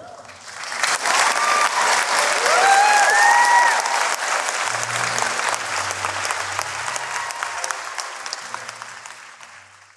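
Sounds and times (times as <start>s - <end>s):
people applauding and cheering: 0.0s - 9.9s
rising whoops: 1.1s - 4.0s, 6.9s - 8.0s.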